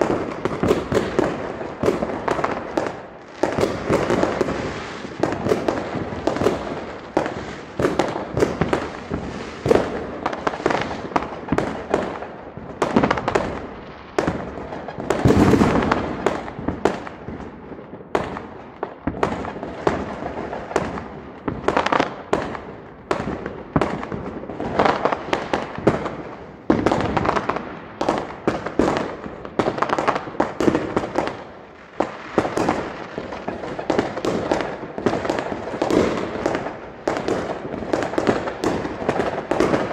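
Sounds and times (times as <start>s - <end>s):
fireworks and firecrackers banging: 0.0s - 39.9s.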